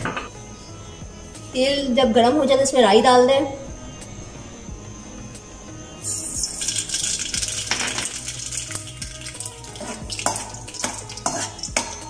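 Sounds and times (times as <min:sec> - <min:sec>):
seeds sizzling in hot oil: 0:05.7 - 0:12.0
metal spoon clinking and scraping pan: 0:06.5 - 0:12.0.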